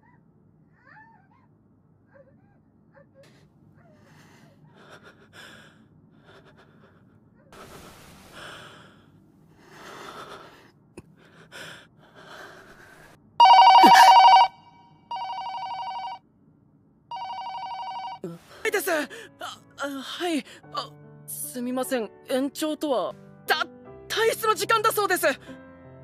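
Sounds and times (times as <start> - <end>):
soft gasps and breaths: 3.0 - 13.2
telephone ringing: 13.4 - 16.2, 17.1 - 18.2.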